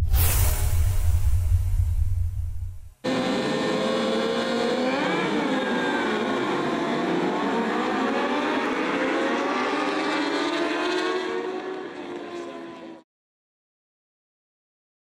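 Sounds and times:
motorcycle engines revving: 3.0 - 13.0.

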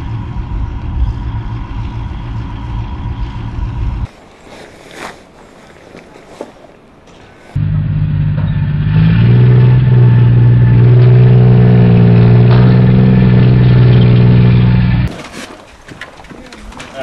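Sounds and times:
heavy vehicle engine revving: 0.0 - 4.1, 7.6 - 15.1.

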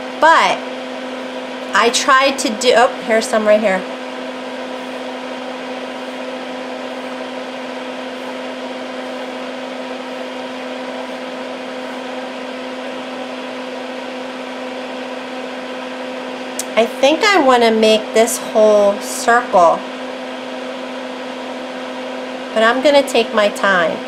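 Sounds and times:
fan whirring: 0.0 - 24.0.

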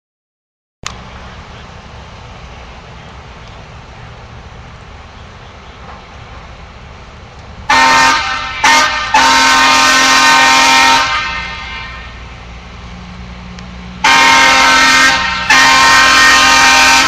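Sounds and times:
truck engine running low: 0.8 - 17.0
truck air horn blasts: 7.7 - 12.4, 14.0 - 17.0.

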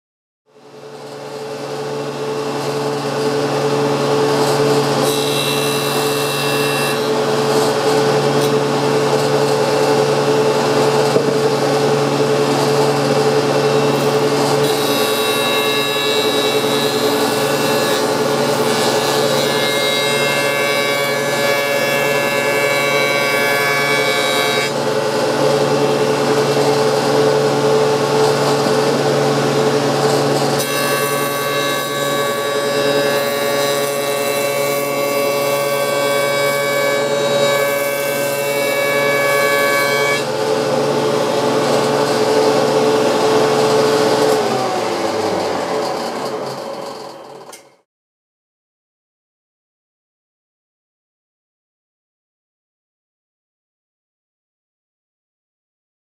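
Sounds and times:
jointer humming: 1.9 - 47.7
knives cutting board: 11.1 - 11.5.

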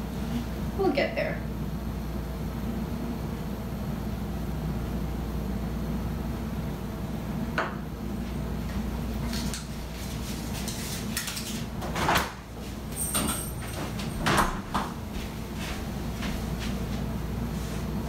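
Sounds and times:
refrigerator door opening and closing: 11.5 - 12.5, 13.1 - 15.0.

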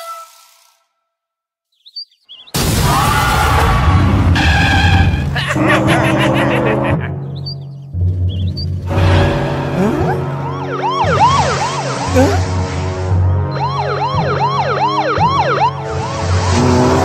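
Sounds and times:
background music: 5.3 - 17.0
cartoon police sirens wailing: 9.8 - 12.5, 13.5 - 16.1.

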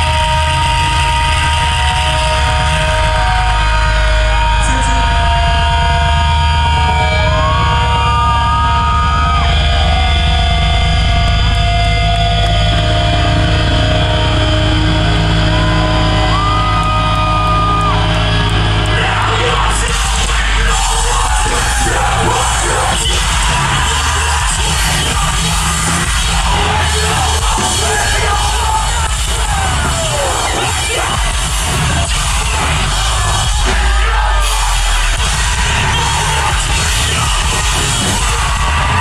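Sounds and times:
drums: 0.0 - 39.0
high sliding whine: 0.0 - 39.0
droning low guitar chord: 9.4 - 23.9
screamed vocals: 18.9 - 39.0.

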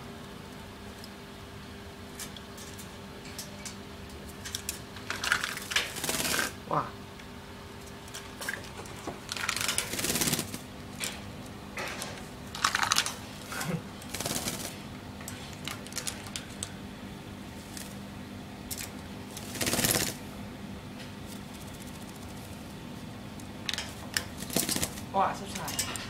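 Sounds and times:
wings fluttering: 4.6 - 6.6, 8.2 - 10.7, 12.6 - 14.9, 17.5 - 18.1, 18.7 - 20.2, 21.2 - 22.8, 24.2 - 25.7.

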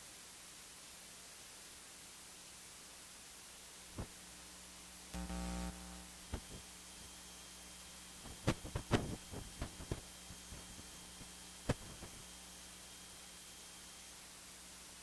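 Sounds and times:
low steady hum: 3.3 - 15.0.

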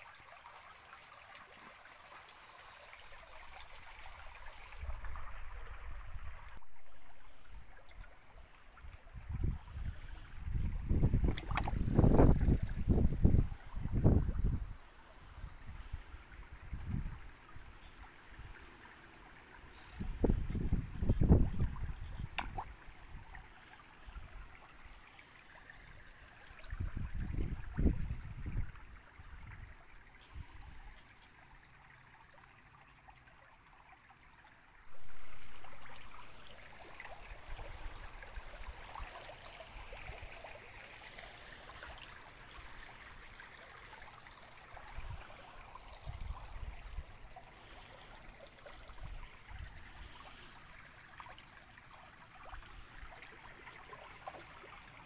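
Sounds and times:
stream water trickling: 0.0 - 55.0
wind buffeting microphone: 9.0 - 14.8, 15.4 - 17.2, 20.0 - 23.4, 26.7 - 29.8.

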